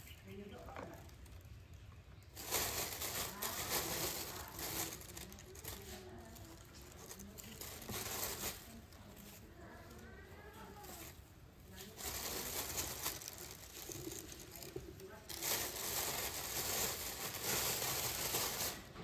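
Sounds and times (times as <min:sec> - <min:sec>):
plastic bags rustling: 0:00.0 - 0:19.0.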